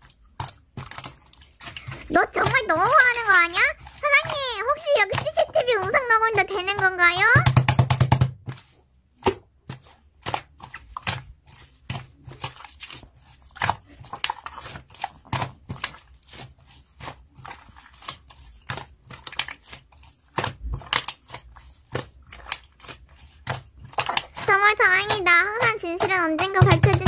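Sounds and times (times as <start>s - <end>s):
slime clicking and popping: 18.0s - 27.0s.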